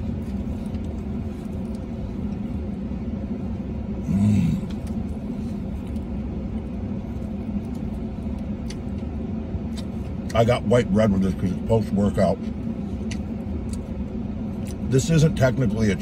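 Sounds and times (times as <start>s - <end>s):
vehicle rumble inside cabin: 0.0s - 16.0s
man humming: 4.0s - 4.8s.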